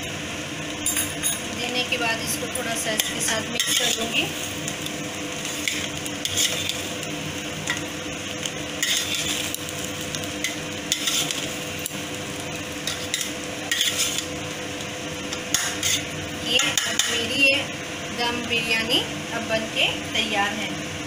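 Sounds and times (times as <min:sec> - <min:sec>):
metal spatula scraping rice in pot: 0:05.6 - 0:06.8, 0:08.8 - 0:09.6, 0:10.4 - 0:11.4, 0:12.9 - 0:14.3, 0:15.5 - 0:16.1.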